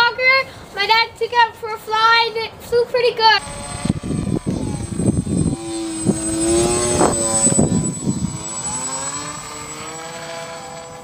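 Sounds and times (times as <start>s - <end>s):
electric motors whining: 3.4s - 11.0s.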